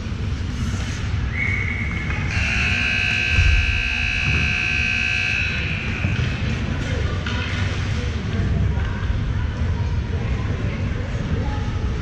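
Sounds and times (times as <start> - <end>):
scoreboard buzzer blast: 2.3 - 6.0.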